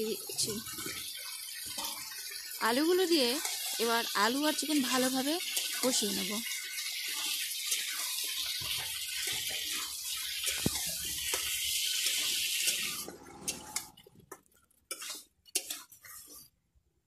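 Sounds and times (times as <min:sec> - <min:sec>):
food sizzling in hot oil: 0:00.0 - 0:16.5
spatula scraping and knocking pan: 0:07.0 - 0:16.6.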